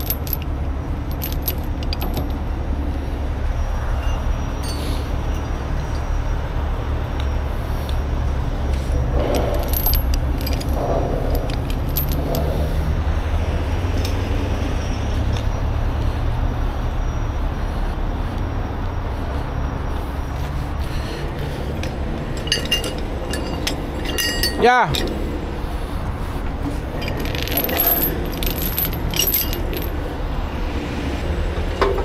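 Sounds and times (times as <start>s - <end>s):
chains rattling and clinking: 0.0s - 2.5s, 4.0s - 5.6s, 9.0s - 15.6s, 19.7s - 30.4s
diesel truck engine rumbling: 0.0s - 32.0s.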